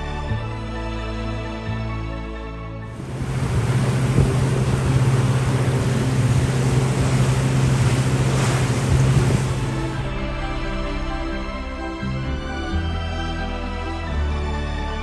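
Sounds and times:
wind noise on microphone: 2.9s - 10.2s
water rushing past hull: 2.9s - 13.4s
boat engine droning: 2.9s - 15.0s.

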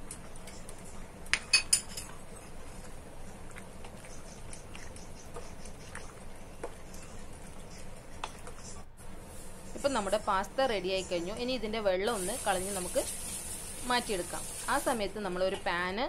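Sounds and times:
spoon clinking against pot: 1.4s - 2.1s
pasta cooking in water: 9.2s - 16.0s.

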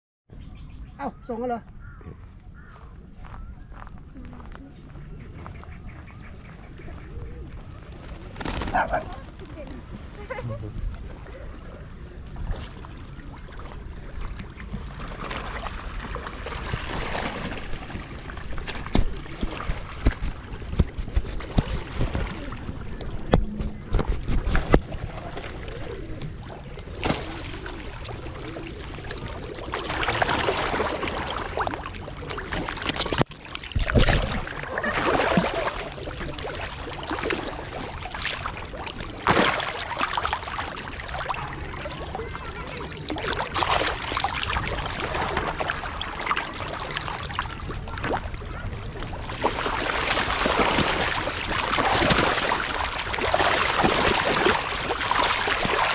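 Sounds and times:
water splashing and sloshing: 4.0s - 55.9s
wind on microphone: 16.6s - 25.3s.

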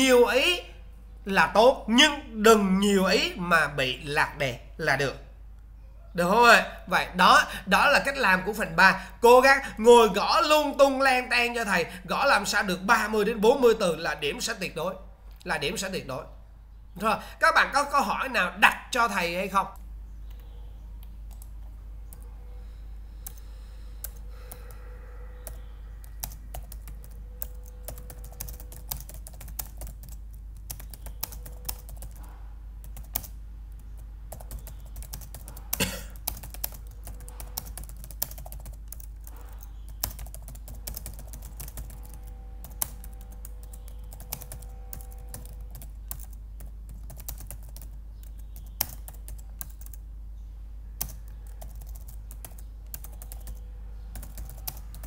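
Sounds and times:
typing on computer keyboard: 25.4s - 50.0s, 51.0s - 55.0s.

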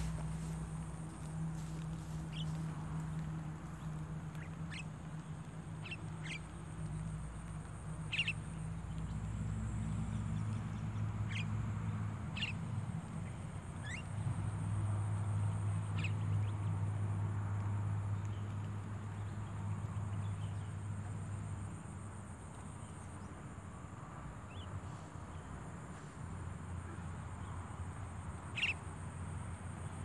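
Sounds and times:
birds chirping: 0.0s - 9.2s, 10.1s - 11.6s, 12.2s - 14.1s, 15.8s - 16.6s, 28.5s - 28.8s
steady low hum: 0.0s - 16.5s.

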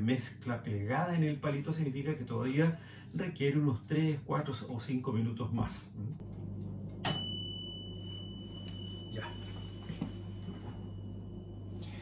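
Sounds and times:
low steady hum: 0.0s - 12.0s
toaster oven timer bell ringing: 7.0s - 11.6s.

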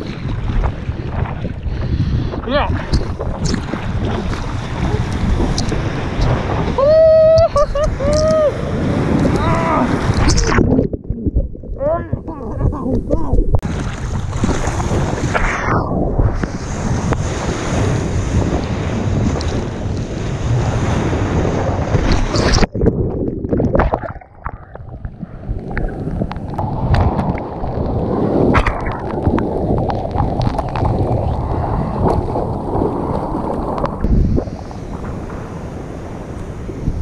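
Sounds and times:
wind buffeting microphone: 0.0s - 37.0s
sharp splash clicks: 5.1s - 6.4s.

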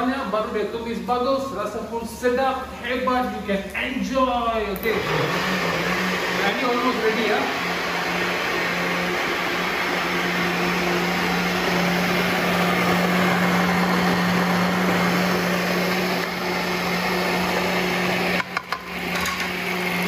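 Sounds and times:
electric blender running: 4.8s - 20.0s.

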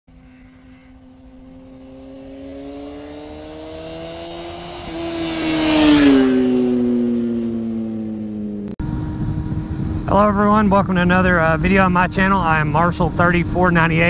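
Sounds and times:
motorcycle passing by: 0.1s - 10.3s.

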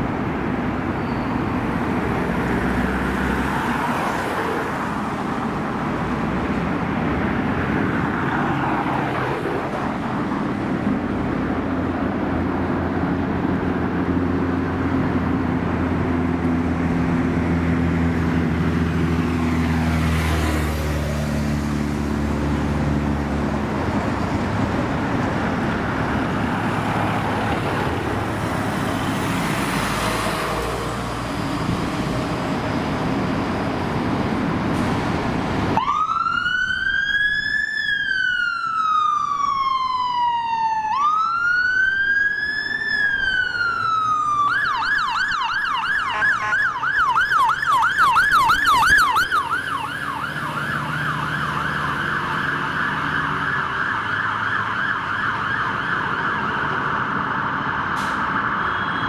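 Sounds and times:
siren fast yelp: 35.8s - 59.0s
siren wailing: 35.8s - 59.0s.

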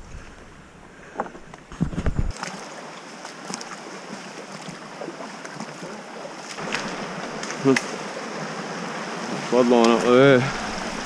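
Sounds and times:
creek water running: 2.3s - 11.0s
wind buffeting microphone: 6.6s - 11.0s.

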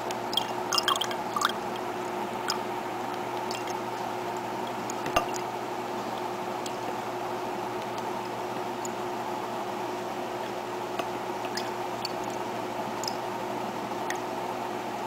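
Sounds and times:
water drips: 0.0s - 7.0s, 10.4s - 13.3s
steady hum and hiss: 0.0s - 15.0s.

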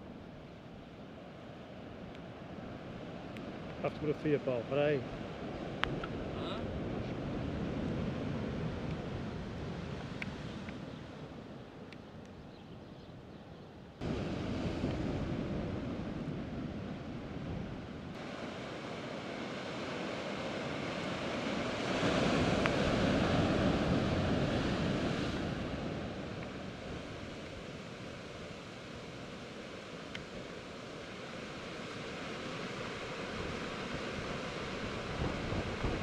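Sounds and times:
wind buffeting microphone: 12.6s - 18.3s, 32.8s - 36.0s
surf breaking on rocky shore: 14.0s - 36.0s.

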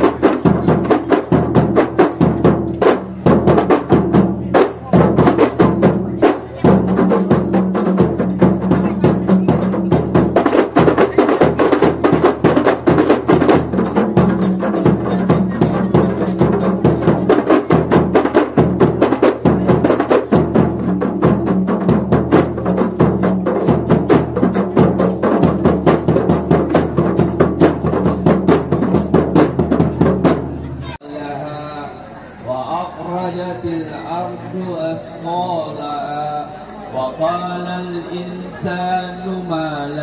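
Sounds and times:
frame drums beating rhythm: 0.0s - 31.0s.

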